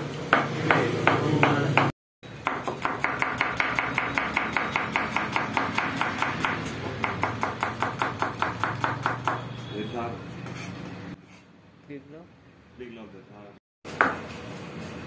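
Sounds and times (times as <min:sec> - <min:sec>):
knife chopping on plastic board: 0:00.3 - 0:09.4.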